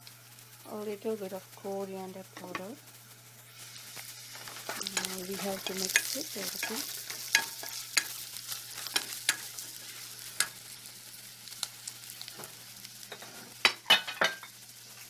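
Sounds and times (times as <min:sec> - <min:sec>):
hot oil sizzling: 0:00.0 - 0:15.0
spatula scraping frying pan: 0:03.4 - 0:10.8, 0:12.1 - 0:14.6
spatula clicks and knocks on pan: 0:04.7 - 0:08.2.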